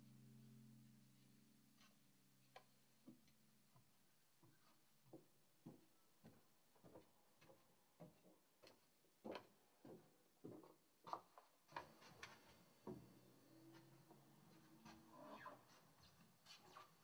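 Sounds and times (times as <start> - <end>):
footsteps on carpeted stairs: 3.8 - 15.1.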